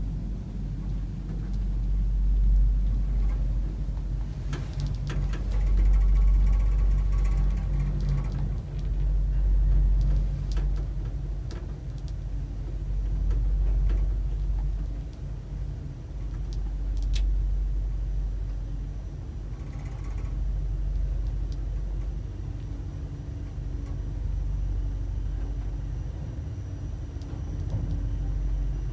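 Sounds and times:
elevator low rumble and hum: 0:00.0 - 0:28.9
faint clicks: 0:04.5 - 0:09.0, 0:11.5 - 0:12.2.

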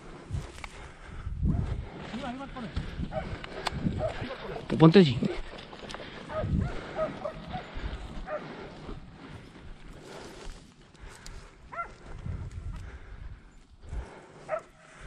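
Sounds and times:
dogs yipping and barking: 0:04.0 - 0:04.7, 0:06.2 - 0:08.5.

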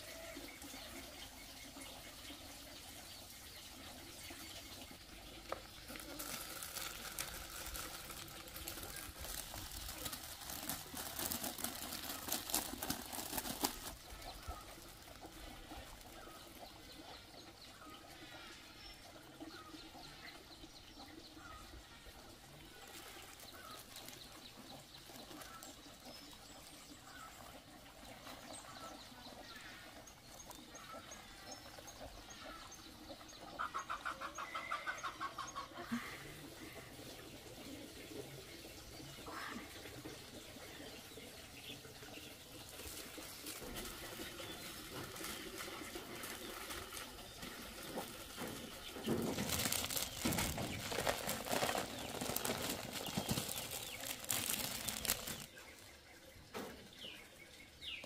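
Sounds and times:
shredded root rustling on concrete: 0:49.0 - 0:55.5.

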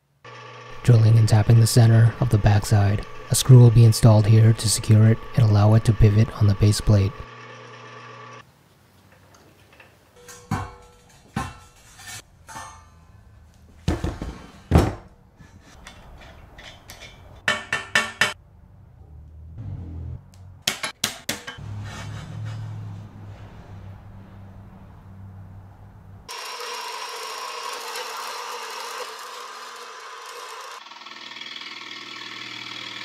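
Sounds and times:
metal lathe running: 0:00.3 - 0:08.4, 0:26.3 - 0:33.0.

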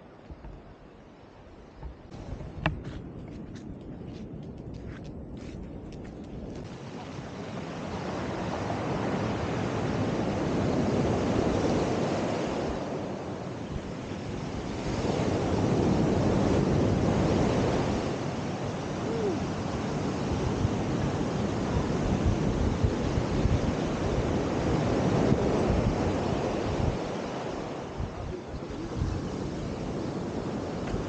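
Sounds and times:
sea waves washing in: 0:06.6 - 0:31.0.

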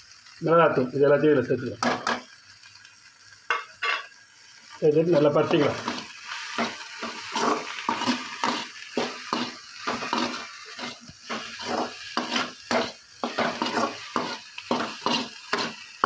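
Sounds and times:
frying sizzle: 0:00.0 - 0:16.0
metal spatula scraping pan: 0:03.5 - 0:04.1, 0:05.4 - 0:16.0.

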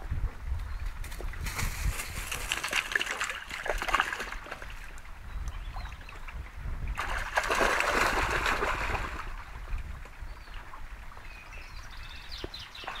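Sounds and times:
dog splashing through water: 0:02.2 - 0:04.9, 0:07.0 - 0:09.4
stream trickling: 0:02.2 - 0:13.0.

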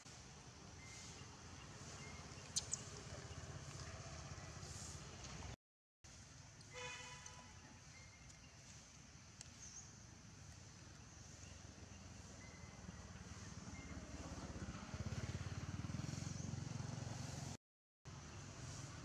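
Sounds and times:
bird chirp: 0:00.7 - 0:03.7, 0:10.9 - 0:16.6
distant vehicle horn beep: 0:06.7 - 0:07.6.

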